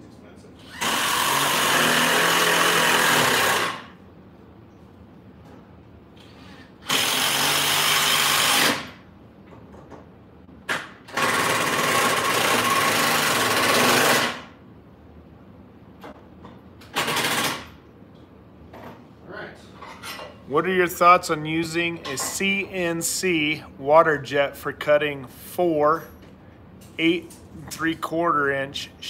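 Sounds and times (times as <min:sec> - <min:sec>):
cordless power driver running: 0:00.6 - 0:03.9.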